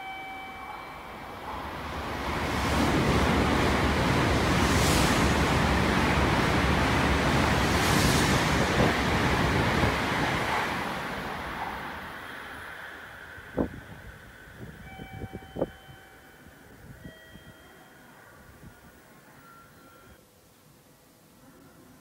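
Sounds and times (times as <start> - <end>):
bullet train passing at speed: 0.0 - 20.2.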